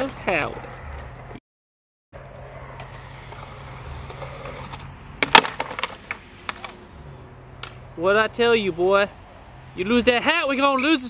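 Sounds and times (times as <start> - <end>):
skateboard rolling on concrete: 0.0 - 1.4, 2.2 - 8.1
skateboard clattering: 2.2 - 6.8
skateboard clacking on concrete: 2.8 - 6.8.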